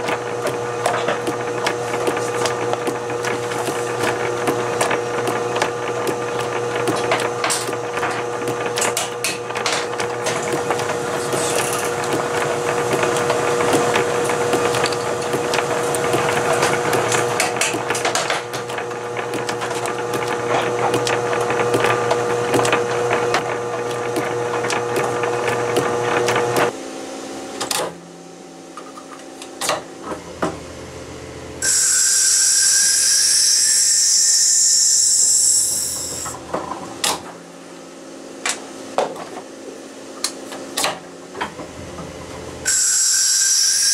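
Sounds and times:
lathe motor hum: 0:00.0 - 0:26.8, 0:30.2 - 0:36.4.

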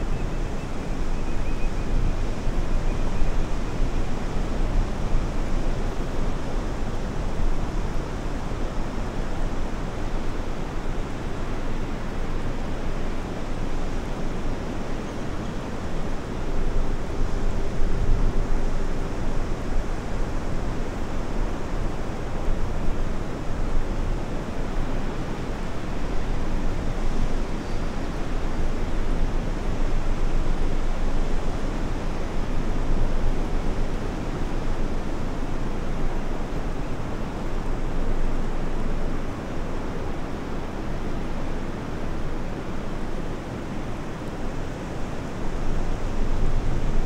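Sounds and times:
wind rumbling on microphone: 0:00.0 - 0:47.0.

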